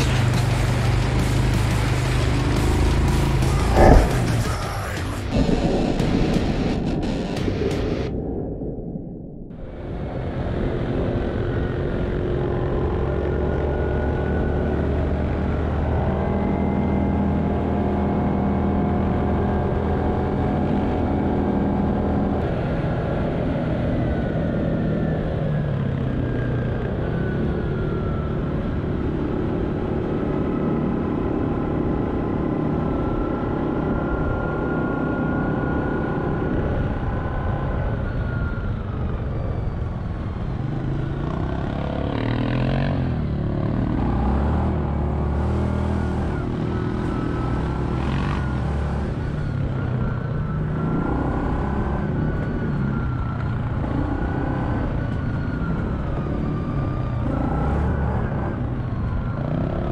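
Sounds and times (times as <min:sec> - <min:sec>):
atv engine running: 0:00.0 - 0:08.0, 0:39.0 - 0:59.9
wind noise: 0:03.0 - 0:12.9.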